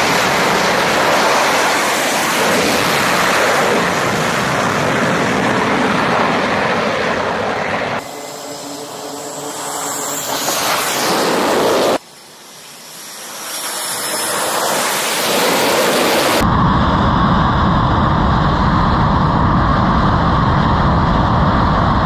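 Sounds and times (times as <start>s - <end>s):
jet engines roaring with whine: 0.0s - 22.0s.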